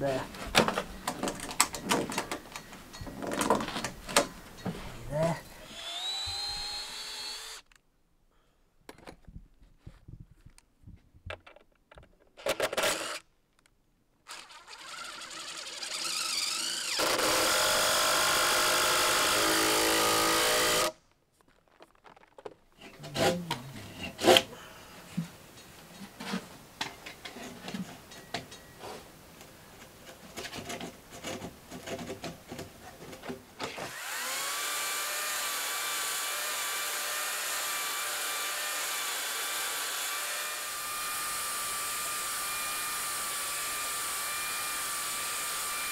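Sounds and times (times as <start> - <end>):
power tool whining: 5.6 - 7.8, 12.4 - 13.2, 14.3 - 21.0, 33.8 - 45.9.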